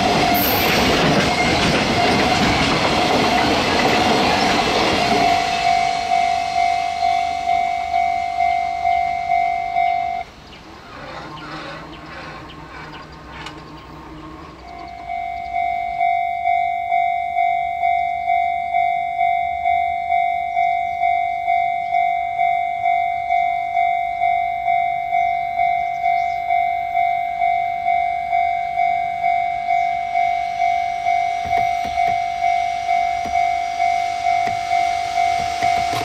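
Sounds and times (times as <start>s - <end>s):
faint freight train: 0.0s - 36.0s
level crossing bell ringing: 3.6s - 10.3s, 14.7s - 36.0s.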